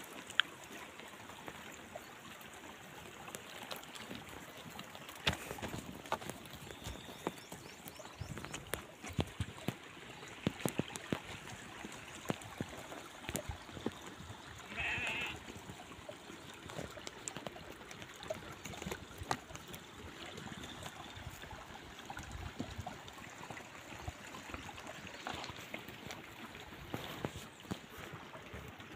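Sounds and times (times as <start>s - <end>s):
hooves clicking on stones: 0.0s - 23.0s, 23.7s - 28.9s
sheep bleating: 14.7s - 15.4s.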